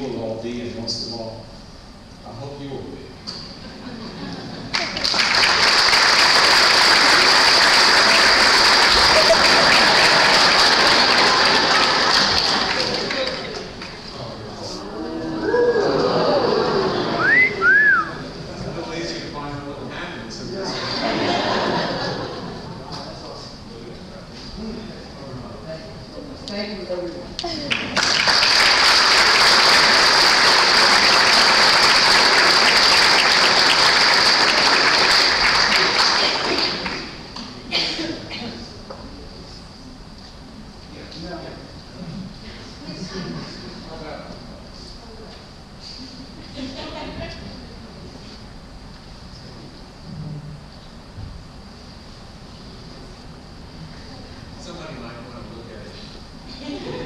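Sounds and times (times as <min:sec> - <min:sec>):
crowd applauding: 0:04.6 - 0:14.1, 0:27.6 - 0:37.6.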